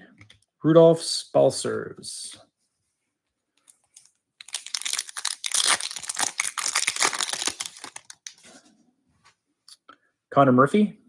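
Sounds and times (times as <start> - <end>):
card pack wrapper crinkling: 3.7 - 8.4.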